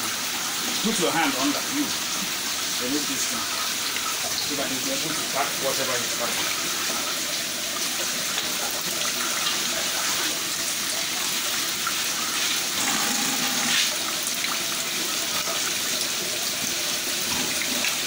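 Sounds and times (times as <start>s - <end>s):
water rushing in a tank: 0.0s - 18.0s.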